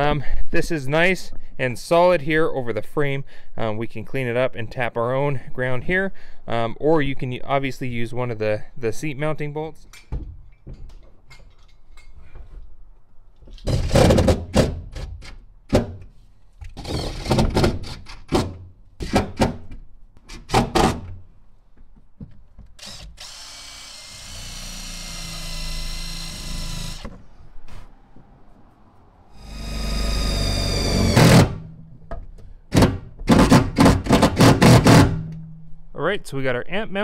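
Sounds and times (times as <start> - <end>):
cordless drill driving bolts: 16.7 - 18.4, 22.8 - 27.2, 29.4 - 31.6.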